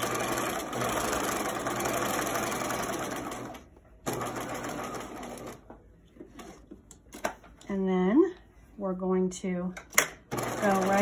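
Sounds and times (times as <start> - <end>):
sewing machine stitching: 0.0 - 5.6, 10.3 - 11.0.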